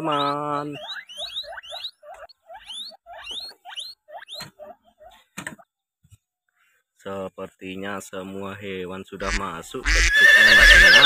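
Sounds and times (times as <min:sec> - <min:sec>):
guinea pigs squealing: 0:00.0 - 0:05.3, 0:09.2 - 0:11.0.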